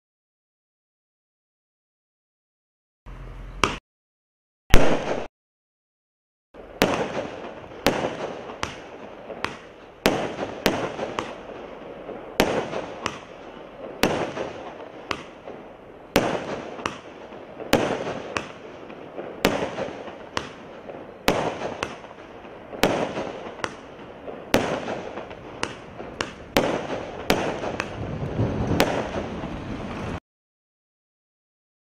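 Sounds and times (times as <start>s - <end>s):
fireworks crackling: 4.7s - 5.3s, 6.6s - 30.2s
fireworks reports: 4.7s - 5.3s, 6.6s - 30.2s.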